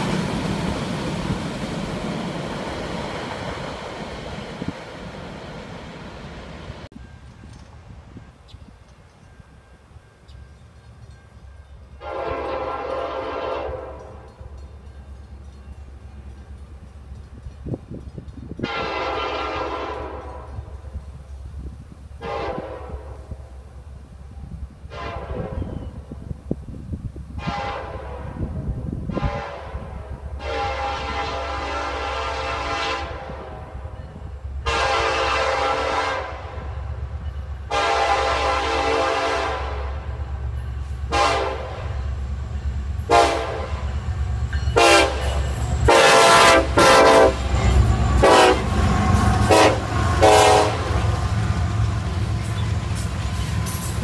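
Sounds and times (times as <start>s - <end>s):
diesel engine and train rumble: 0.0s - 54.0s
train air horn blasts: 12.0s - 14.3s, 18.6s - 20.8s, 22.2s - 23.5s, 24.9s - 26.0s, 27.3s - 36.8s, 37.7s - 40.0s, 41.0s - 42.0s, 43.0s - 44.0s, 44.8s - 51.4s.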